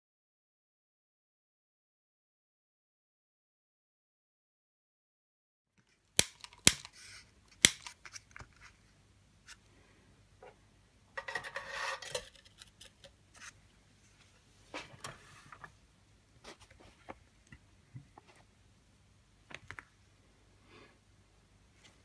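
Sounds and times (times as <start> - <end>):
tin scraping across table: 11.2 - 12.4.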